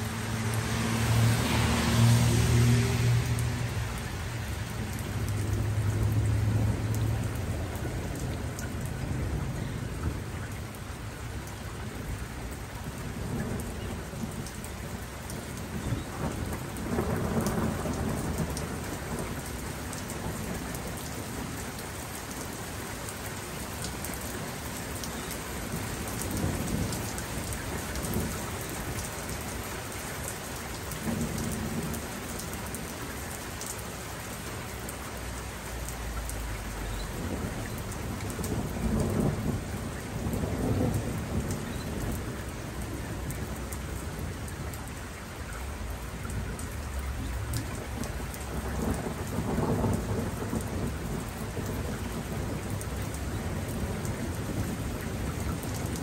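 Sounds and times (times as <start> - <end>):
steady rain falling: 0.0 - 56.0
low rolling thunder: 15.6 - 21.6, 31.0 - 32.1, 37.1 - 44.6, 47.7 - 56.0.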